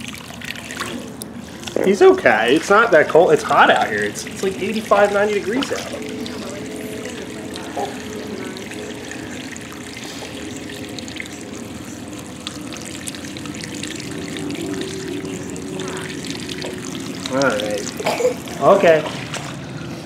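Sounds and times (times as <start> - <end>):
hose water pouring into pool: 0.0 - 20.0.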